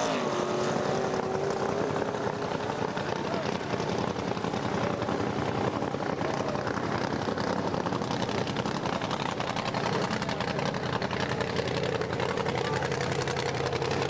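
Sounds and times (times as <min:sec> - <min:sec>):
drag racing car engines running: 0:00.0 - 0:14.0.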